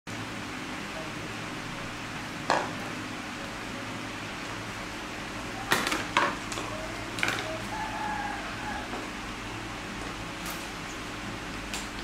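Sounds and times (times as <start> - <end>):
background hum: 0.2 - 12.0
hard objects clattering on tiles: 5.7 - 7.5.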